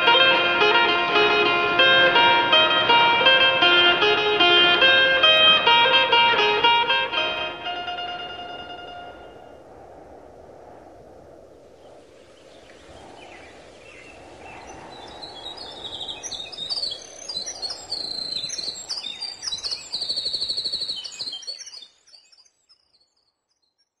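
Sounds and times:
birds chirping and trilling: 11.8s - 23.8s.

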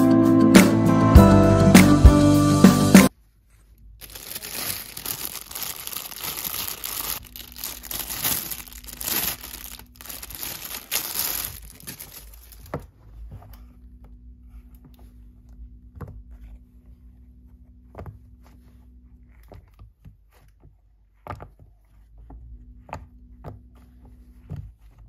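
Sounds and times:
plastic film crinkling and tearing: 4.0s - 12.8s.

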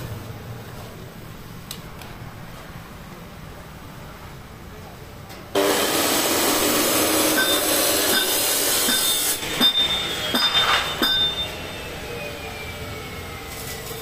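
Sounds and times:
harsh metalworking noise: 5.5s - 14.0s
ringing metal clanks: 7.3s - 11.7s.

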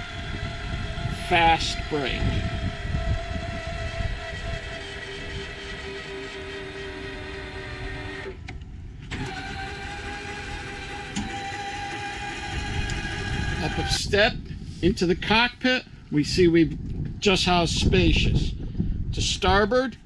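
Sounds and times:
hydraulic pump whining: 0.0s - 14.6s.

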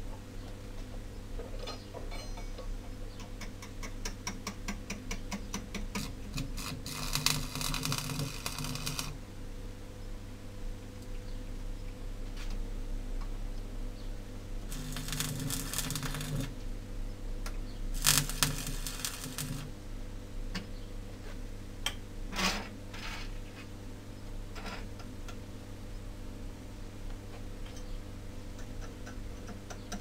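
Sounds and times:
steady low hum: 5.4s - 22.3s
arc welding crackle: 5.9s - 9.2s, 14.6s - 16.6s, 17.9s - 19.8s.

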